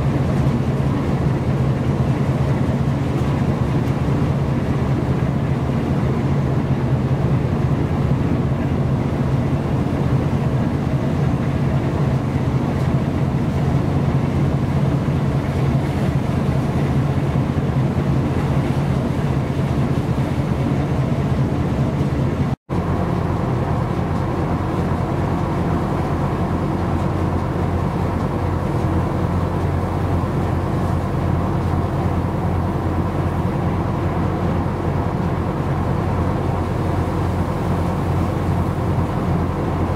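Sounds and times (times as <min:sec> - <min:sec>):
ship engine droning: 0:00.0 - 0:39.9
wind and sea hiss: 0:00.0 - 0:39.9.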